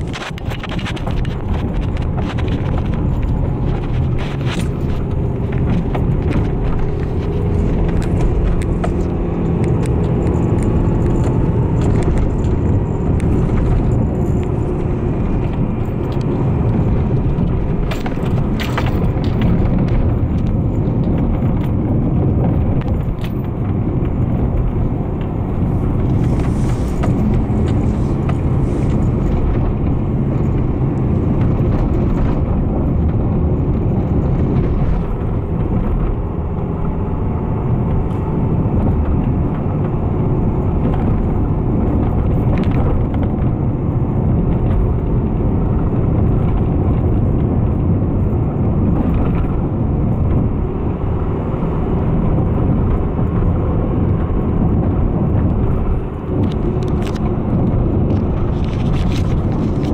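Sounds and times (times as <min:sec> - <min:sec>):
clicks and rattles: 0:00.0 - 0:30.6, 0:54.1 - 0:59.9
car engine and tyre rumble: 0:00.0 - 0:59.9.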